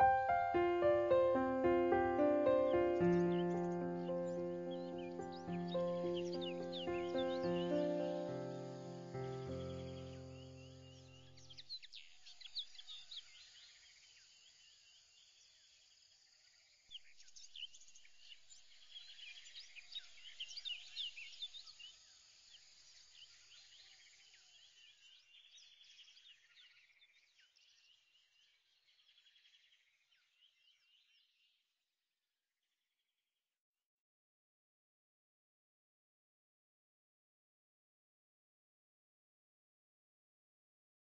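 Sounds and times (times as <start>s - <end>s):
small birds chirping: 0.0s - 15.8s, 16.9s - 31.6s.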